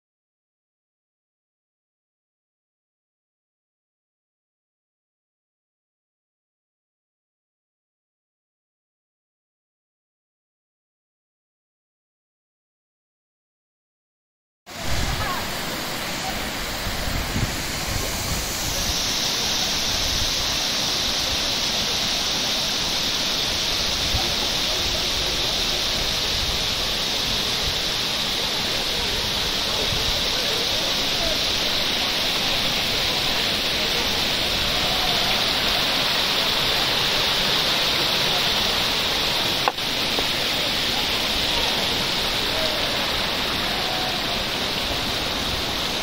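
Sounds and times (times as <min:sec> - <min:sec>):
stream splashing over rocks: 0:14.7 - 0:46.0.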